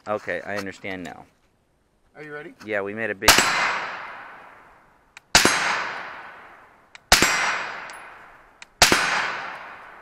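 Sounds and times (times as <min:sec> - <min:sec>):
suppressed rifle shots: 0:03.3 - 0:04.6, 0:05.2 - 0:10.0.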